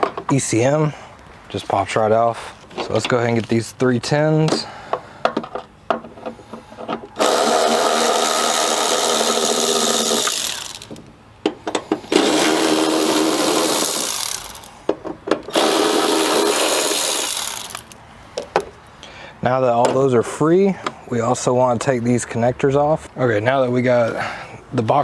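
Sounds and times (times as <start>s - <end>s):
electric ratchet running: 7.2s - 11.0s, 12.1s - 14.7s, 15.5s - 18.0s
socket and bolts clinking: 16.9s - 18.0s.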